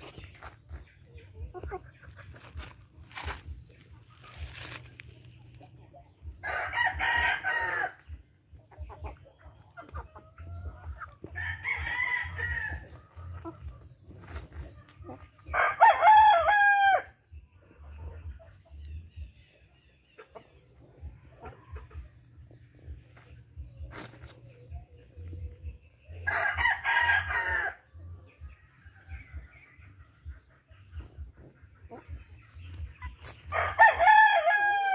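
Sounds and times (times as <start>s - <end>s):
chickens feeding: 0.0s - 15.8s, 17.4s - 26.6s, 27.2s - 34.9s
rooster crowing: 6.4s - 8.0s, 15.6s - 17.1s.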